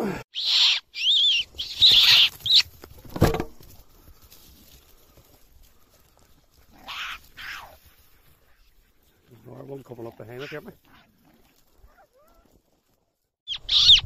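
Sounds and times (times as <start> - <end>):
short thud: 3.0 - 3.7.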